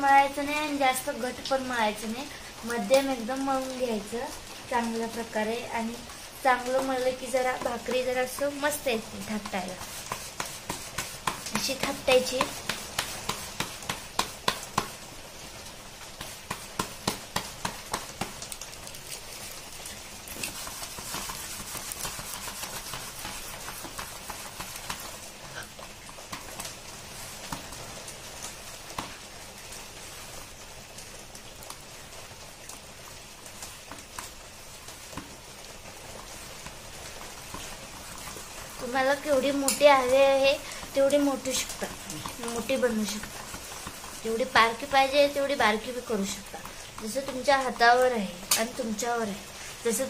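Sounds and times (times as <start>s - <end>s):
palms slapping dough: 0.0s - 31.9s, 33.4s - 50.0s
hands rubbing dough on plate: 5.8s - 15.0s, 16.1s - 18.4s, 19.1s - 25.8s.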